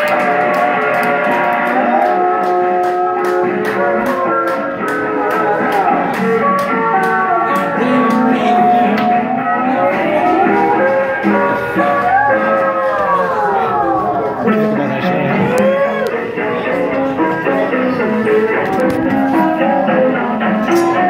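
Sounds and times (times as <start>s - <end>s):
drums: 0.0s - 21.0s
electric guitar: 0.0s - 21.0s.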